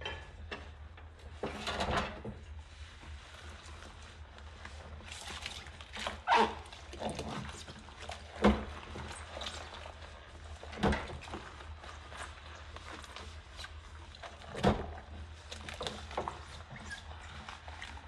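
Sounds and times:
sponge scrubbing a glass: 2.6 - 18.0.

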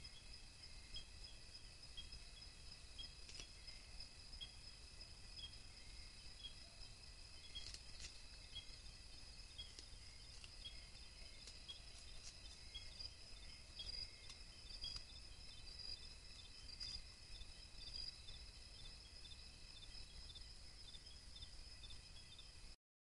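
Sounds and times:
insects chirring: 0.0 - 22.8
faint ticks: 3.2 - 3.8, 13.8 - 15.2.

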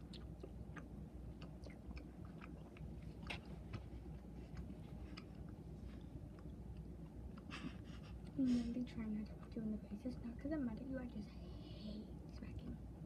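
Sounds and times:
person chewing food: 0.0 - 8.4.

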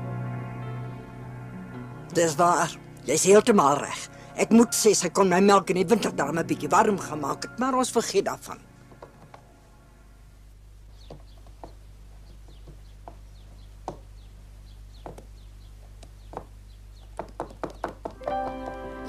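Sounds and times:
background music: 0.0 - 10.3, 18.2 - 19.0
knocks: 11.0 - 14.1, 15.0 - 15.3, 15.9 - 18.9.

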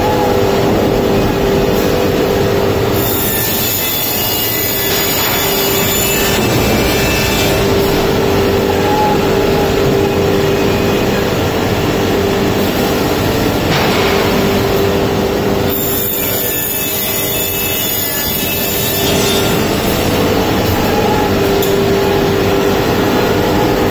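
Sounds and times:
cutting machine humming: 2.2 - 13.8.

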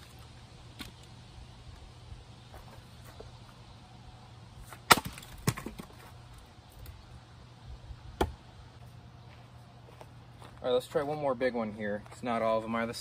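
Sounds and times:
axe splitting wood with crack: 4.6 - 6.1.

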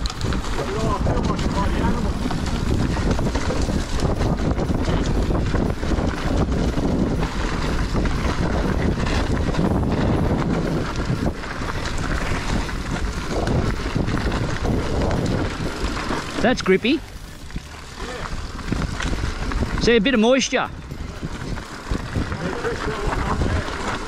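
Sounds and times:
bike rattling over bumps: 0.0 - 24.0
tyres rolling over dirt: 0.0 - 24.0
wind buffeting microphone: 0.0 - 24.0.

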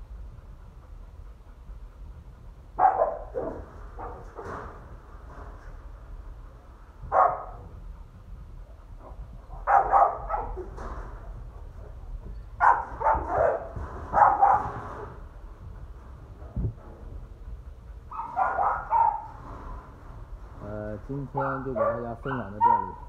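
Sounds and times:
dog barking: 2.8 - 4.3, 7.1 - 7.6, 9.6 - 10.7, 12.6 - 14.8, 18.1 - 19.4, 21.4 - 23.0.

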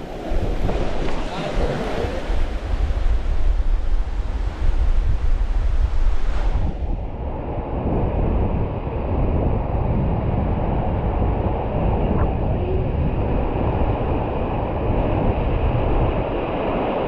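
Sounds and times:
river water rushing: 0.0 - 4.5
wind buffeting microphone: 0.0 - 17.0.

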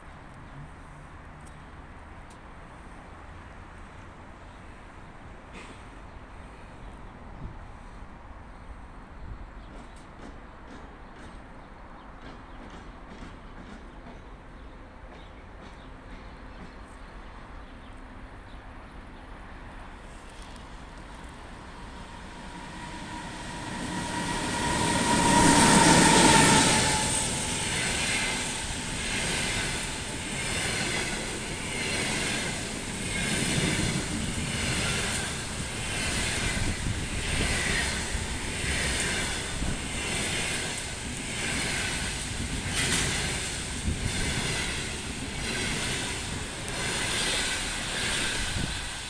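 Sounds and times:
train coaches rolling by: 0.0 - 49.0
electric locomotive passing: 17.4 - 49.0.

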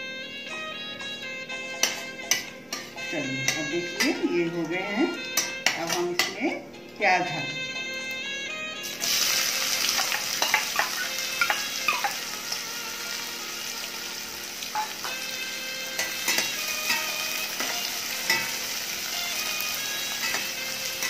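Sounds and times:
spatula scraping a pan: 1.5 - 6.4, 8.9 - 21.0
onions sizzling in hot oil: 8.8 - 21.0.

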